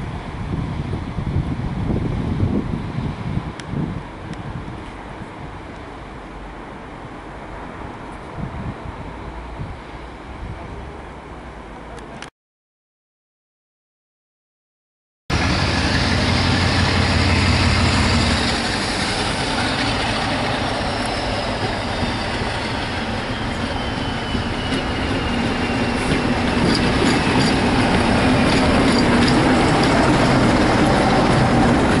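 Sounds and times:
diesel locomotive engine: 0.0 - 12.3, 15.3 - 32.0
train wheels clicking over rail joints: 23.9 - 32.0.

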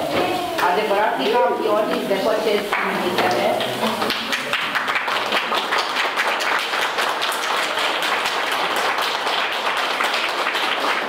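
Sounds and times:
hands clapping: 2.6 - 11.0.

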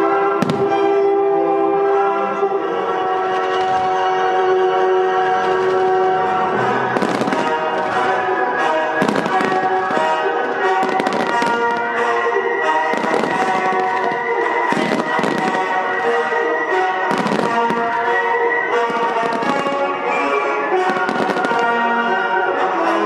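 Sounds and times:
loud music with sustained notes: 0.0 - 23.0
firework shells bursting: 6.9 - 8.4, 9.0 - 22.0.

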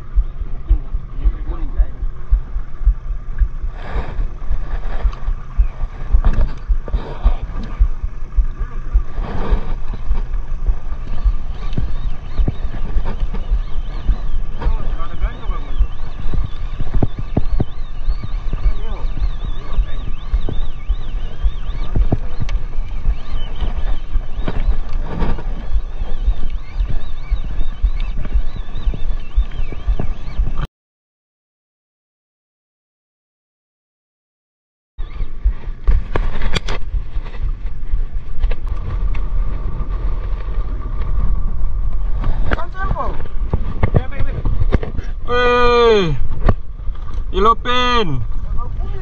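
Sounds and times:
boat engine idling: 0.0 - 30.3
sea wash: 0.0 - 30.6
thin high wavering whine: 0.0 - 30.7
wind buffeting microphone: 0.0 - 30.7, 35.0 - 49.0.

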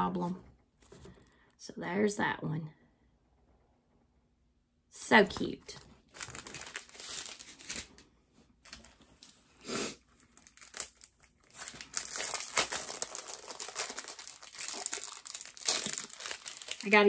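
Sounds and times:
plastic packaging crinkling: 5.4 - 9.4, 10.1 - 17.0.

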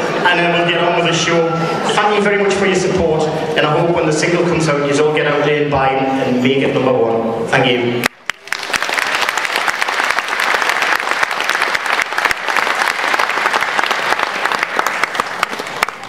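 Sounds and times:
crowd applauding: 8.0 - 16.0.

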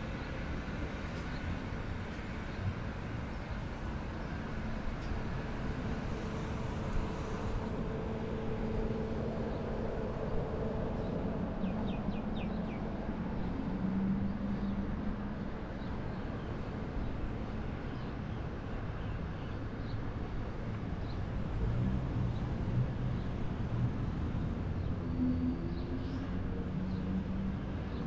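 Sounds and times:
road traffic rumble: 0.0 - 28.0
passing vehicle engines: 0.1 - 28.0.

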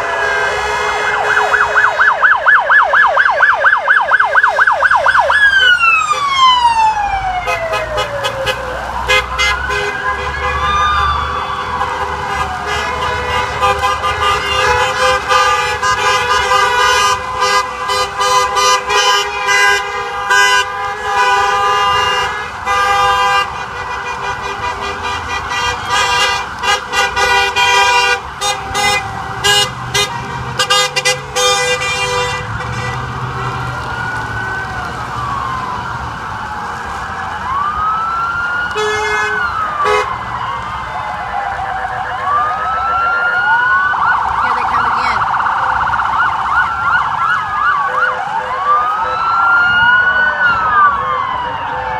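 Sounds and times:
car horns honking: 0.0 - 2.3, 7.4 - 33.8, 38.8 - 40.1
emergency siren wailing: 0.0 - 51.9.

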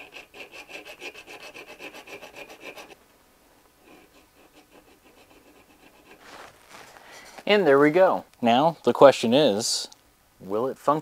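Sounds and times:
hand file scraping metal: 0.0 - 3.0, 3.8 - 6.5.

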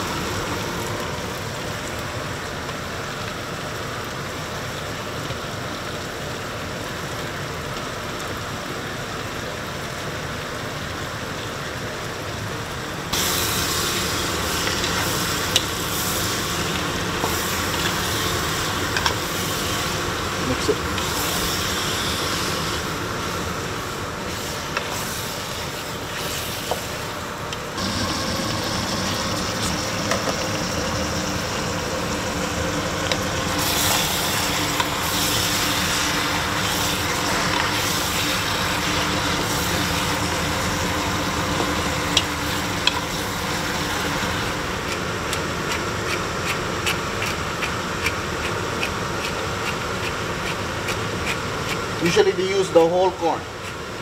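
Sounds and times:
steady background hum: 10.9 - 54.0
meat sizzling in a pot: 13.0 - 52.2.

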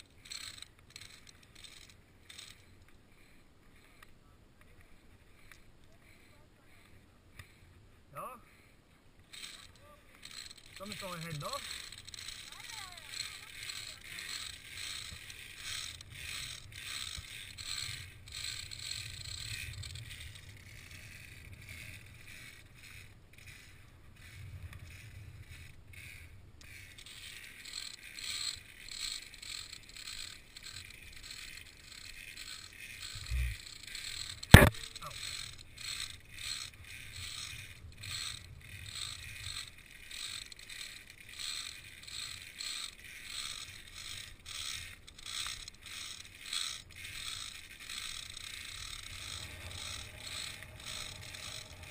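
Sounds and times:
carabiners clicking on steel cables: 0.0 - 4.1, 9.3 - 51.9.

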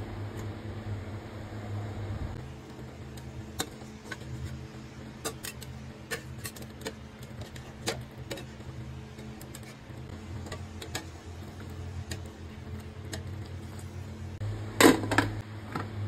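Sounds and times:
low steady hum: 0.0 - 16.0
metal utensils clinking on pot: 5.2 - 9.8.

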